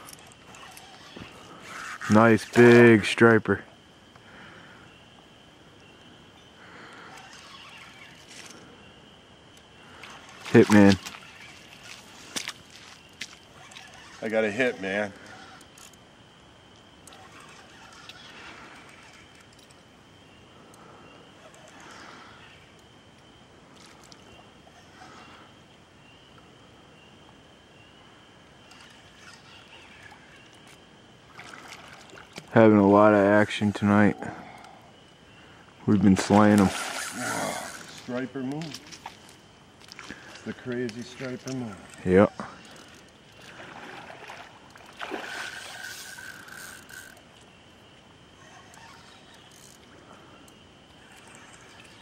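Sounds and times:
fishing reel drag whining: 0:00.0 - 0:03.4, 0:06.4 - 0:16.1, 0:17.0 - 0:20.0, 0:20.7 - 0:22.9, 0:28.6 - 0:52.0
river water rushing: 0:43.4 - 0:46.2.

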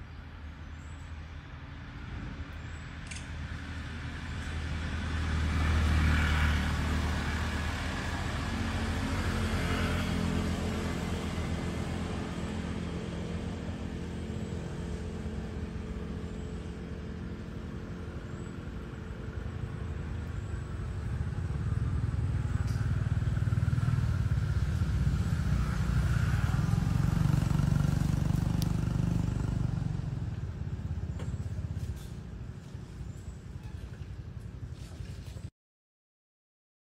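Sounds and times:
vehicle engine running: 0:03.8 - 0:33.4.

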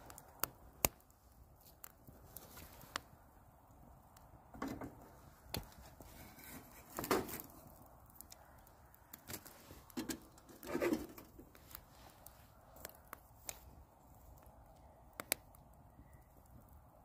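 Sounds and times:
wood fire crackling: 0:00.0 - 0:17.0.

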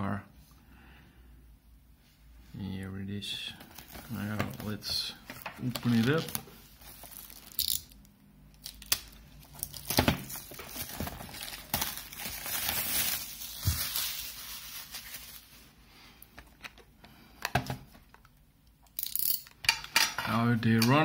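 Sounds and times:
plastic wrapping crinkling and tearing: 0:03.6 - 0:08.0, 0:08.6 - 0:15.7.

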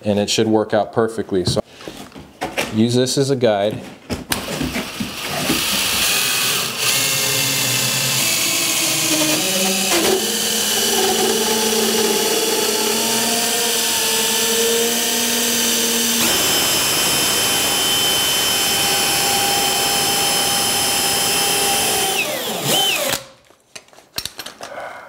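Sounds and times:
cordless drill whirring: 0:04.8 - 0:23.3.

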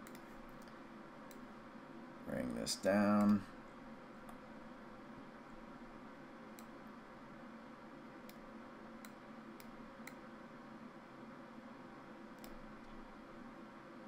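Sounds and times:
computer mouse clicking: 0:00.0 - 0:01.5, 0:03.2 - 0:03.4, 0:06.5 - 0:06.8, 0:09.0 - 0:10.2, 0:12.4 - 0:13.0
faint room hiss: 0:00.0 - 0:14.0.

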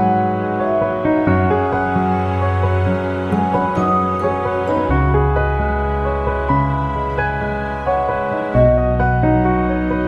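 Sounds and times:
slow soft instrumental music: 0:00.0 - 0:10.0.

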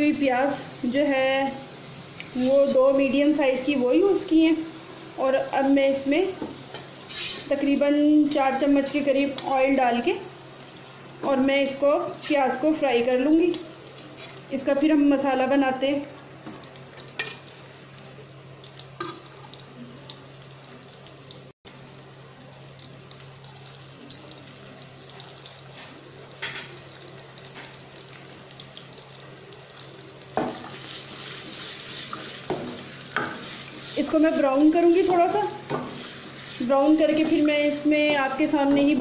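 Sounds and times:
onions sizzling in oil: 0:00.0 - 0:39.0
spatula stirring onions: 0:04.7 - 0:07.8, 0:30.1 - 0:37.7.

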